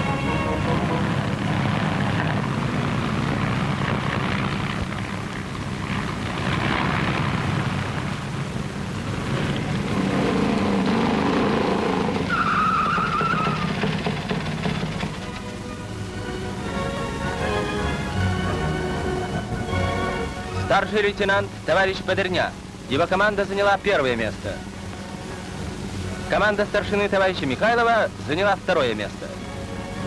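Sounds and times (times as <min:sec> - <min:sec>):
music: 0:00.0 - 0:02.2, 0:14.8 - 0:22.4, 0:24.5 - 0:30.0
motorcycle engines racing: 0:00.0 - 0:15.6.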